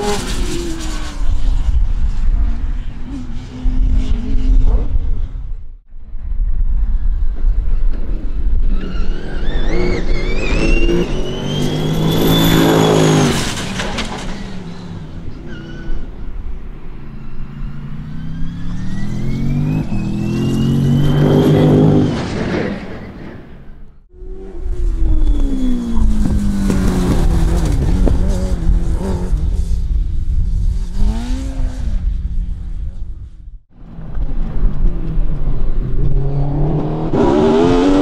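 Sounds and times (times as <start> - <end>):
racing car engines at full throttle: 8.0 - 22.1, 24.1 - 29.8, 33.8 - 38.0.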